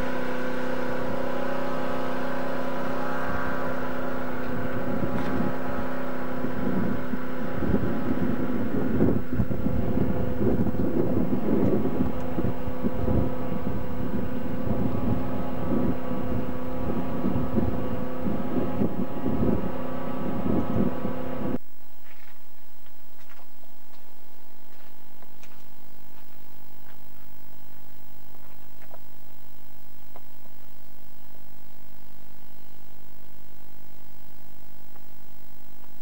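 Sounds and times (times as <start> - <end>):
loud rough rumbling: 0.0 - 21.6
faint electrical hum: 0.0 - 36.0.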